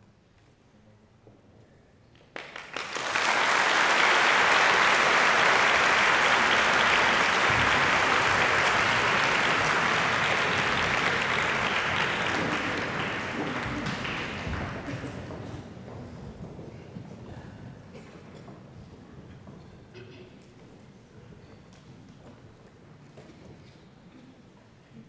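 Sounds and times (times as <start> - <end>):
audience applauding: 2.3 - 15.5.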